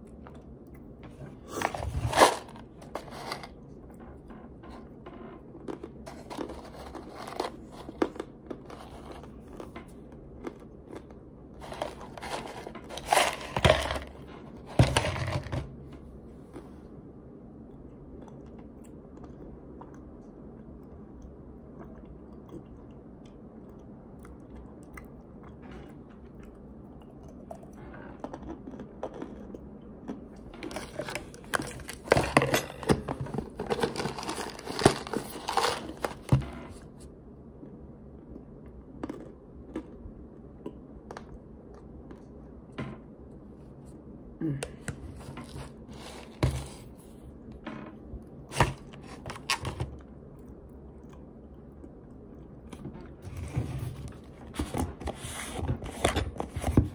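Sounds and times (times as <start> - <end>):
chewing and crunching: 17.6 - 32.4, 38.2 - 42.4, 49.1 - 53.2.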